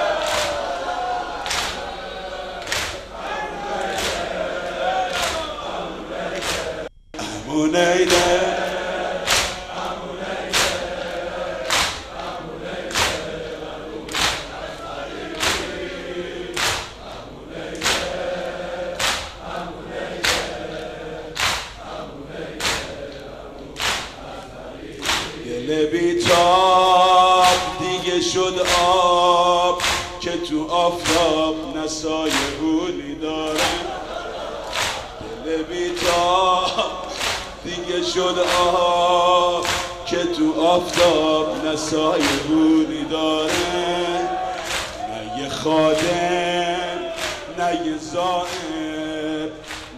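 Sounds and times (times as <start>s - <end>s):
people chanting together: 0.0s - 49.9s
chest-beating slaps: 1.4s - 1.8s, 2.6s - 3.2s, 3.8s - 4.4s, 6.3s - 7.4s, 8.0s - 13.5s, 14.1s - 15.8s, 16.5s - 17.0s, 17.7s - 18.2s, 18.9s - 19.5s, 20.2s - 20.6s, 21.3s - 21.9s, 22.6s - 24.3s, 24.9s - 25.4s, 28.6s - 29.1s, 29.8s - 30.3s, 33.4s - 34.0s, 34.6s - 35.4s, 36.0s - 37.7s, 38.4s - 40.2s, 42.0s - 42.8s, 43.4s - 45.1s, 47.1s - 47.5s.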